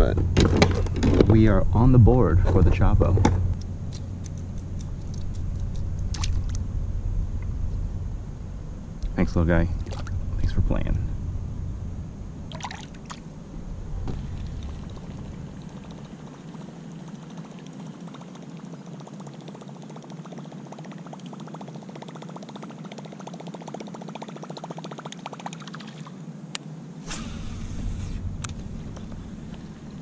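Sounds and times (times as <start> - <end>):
water splash: 6.1 - 6.6, 9.8 - 10.2, 12.5 - 13.2
fishing reel ticking and churning: 15.8 - 26.0.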